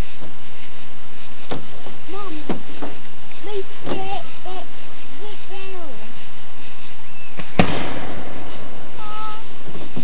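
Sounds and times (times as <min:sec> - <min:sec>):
firework fizzing hiss: 0:00.0 - 0:10.0
firework crack: 0:07.3 - 0:10.0.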